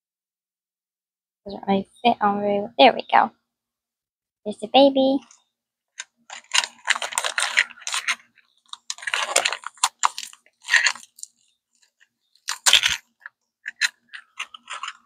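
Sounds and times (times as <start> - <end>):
paper wrapper crinkling: 6.0 - 15.0.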